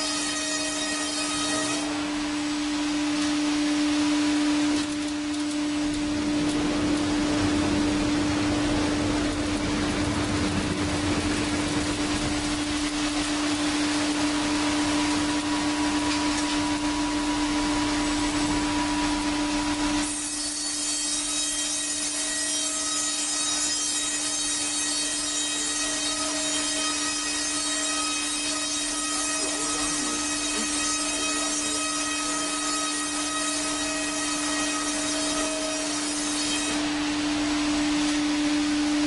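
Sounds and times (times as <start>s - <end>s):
power saw cutting wood: 0.0s - 2.4s, 13.6s - 37.0s
high whine: 2.1s - 20.2s.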